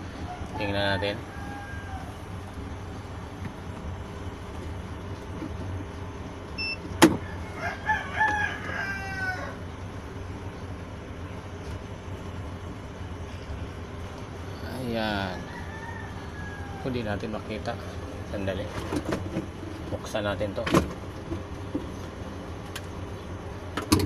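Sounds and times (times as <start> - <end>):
rooster crowing: 0.0 - 2.6, 7.2 - 9.7, 14.8 - 17.4
steady low hum: 0.0 - 24.0.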